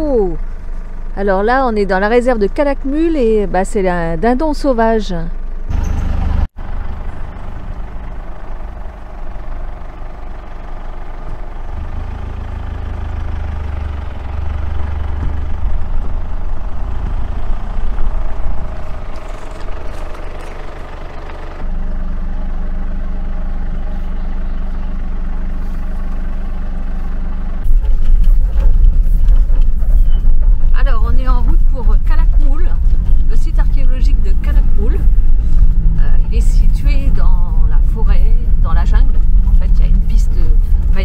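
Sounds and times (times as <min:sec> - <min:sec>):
truck engine running: 0:00.0 - 0:41.0.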